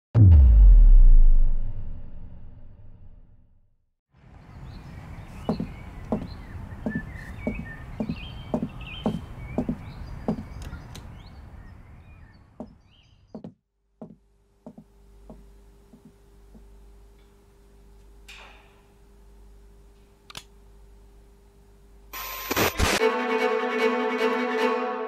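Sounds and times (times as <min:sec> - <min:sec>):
low rumble: 0:00.2 - 0:03.5
birds chirping: 0:04.4 - 0:13.6
regular knocks: 0:05.5 - 0:11.1.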